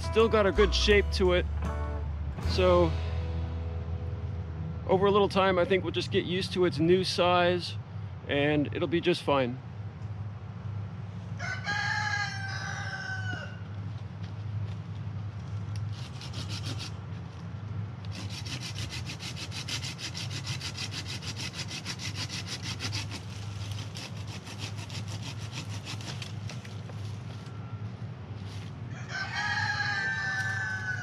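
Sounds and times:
steady low hum: 0:00.0 - 0:11.3
rooster crowing: 0:11.4 - 0:13.7, 0:28.9 - 0:31.0
hand saw cutting branch: 0:15.8 - 0:17.0, 0:18.1 - 0:26.8.

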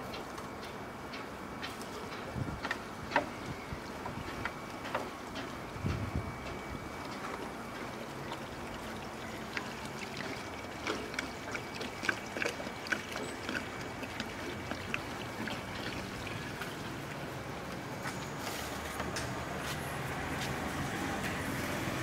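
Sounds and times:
water drips and splashes: 0:03.8 - 0:22.0
water pouring into a clay pot: 0:08.0 - 0:17.4.

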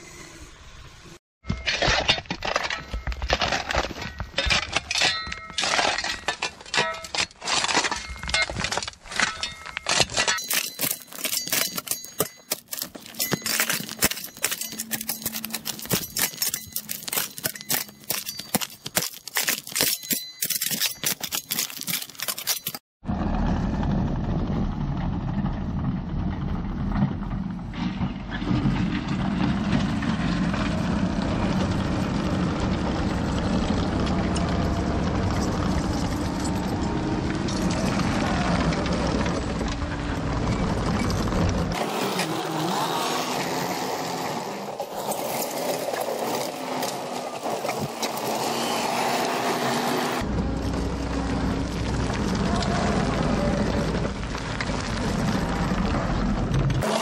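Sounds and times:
shovel scraping rocks: 0:01.5 - 0:22.8, 0:41.7 - 0:50.3, 0:56.8 - 0:57.0
track loader engine running: 0:23.1 - 0:57.0.

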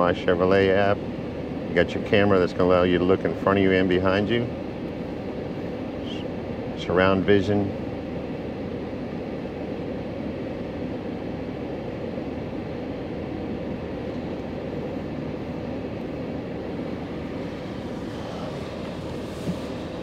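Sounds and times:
car engine idling: 0:16.0 - 0:20.0.

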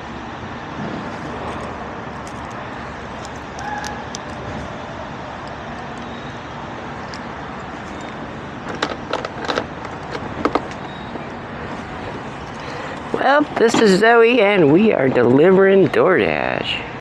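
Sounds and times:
outdoor background rumble: 0:00.0 - 0:17.0
sharp clicks and knocks: 0:07.0 - 0:11.3.

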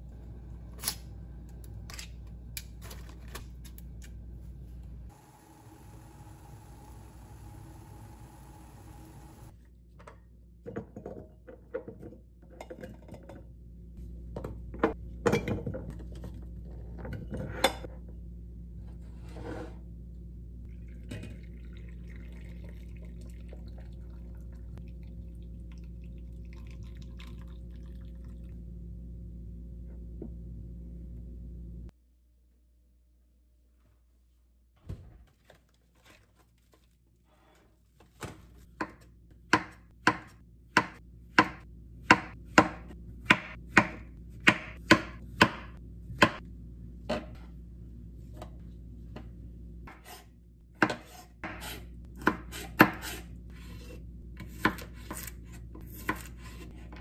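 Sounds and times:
low steady hum: 0:00.0 - 0:10.6, 0:12.3 - 0:33.6, 0:45.1 - 0:50.7.

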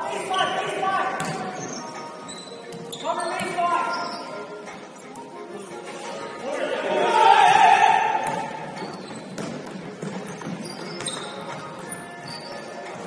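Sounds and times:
sneaker squeaks on court: 0:00.2 - 0:04.5, 0:08.2 - 0:13.0
basketball bouncing: 0:01.2 - 0:01.6, 0:08.2 - 0:12.0.

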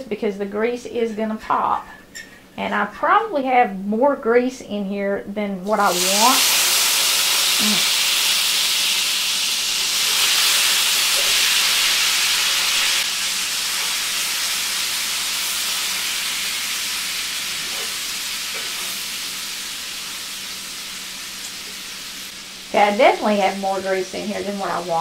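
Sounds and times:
potatoes sizzling in grease: 0:05.7 - 0:25.0.

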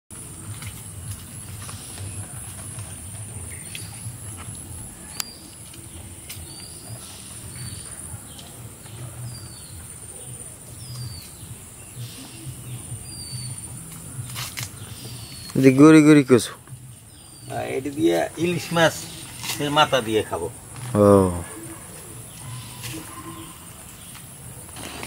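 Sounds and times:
bird chirping: 0:00.2 - 0:24.9.

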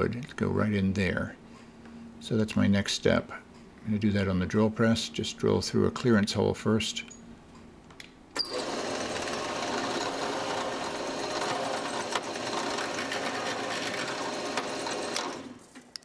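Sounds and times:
drill press boring through wood: 0:08.4 - 0:15.7.

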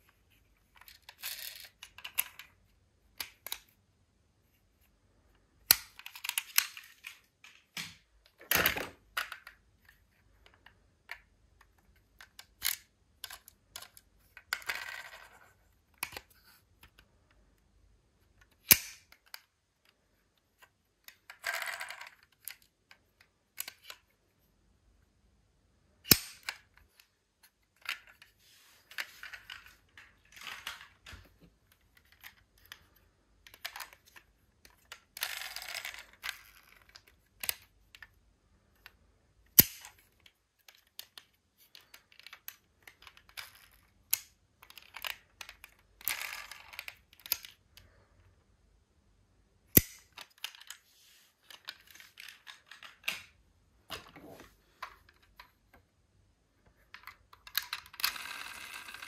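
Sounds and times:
toy cars clicking together: 0:18.4 - 0:19.5, 0:33.5 - 0:38.1, 0:38.8 - 0:47.9, 0:57.0 - 0:59.0.

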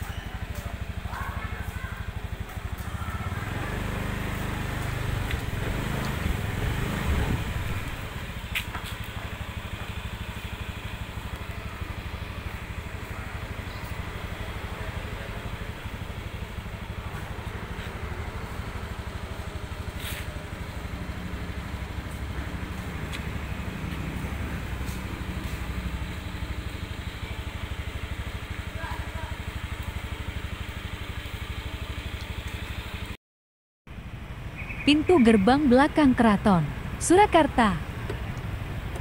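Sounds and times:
vehicle engine running steadily: 0:00.0 - 0:33.2, 0:33.9 - 0:39.0.

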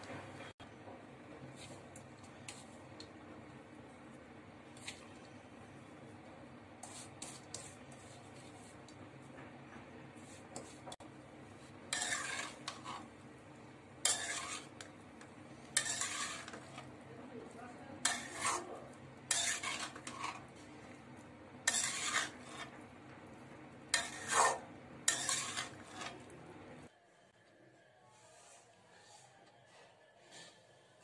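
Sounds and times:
spatula scraping frying pan: 0:06.8 - 0:09.0, 0:10.2 - 0:13.3, 0:13.9 - 0:17.0, 0:18.0 - 0:22.9, 0:23.8 - 0:26.3.

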